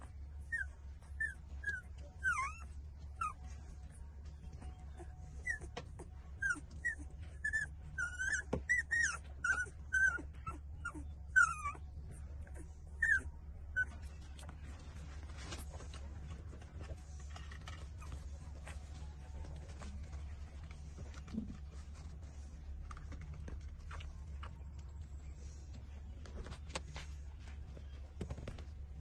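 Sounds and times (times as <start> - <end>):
faint clicks and shuffling: 0.0 - 29.0
puppies whimpering: 0.5 - 3.5, 4.6 - 14.4.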